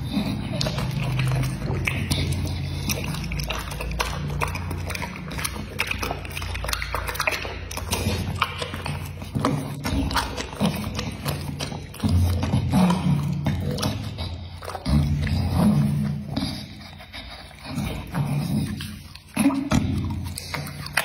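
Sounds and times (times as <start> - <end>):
dog chewing wetly: 0.0 - 21.0
dog licking lips: 0.0 - 21.0.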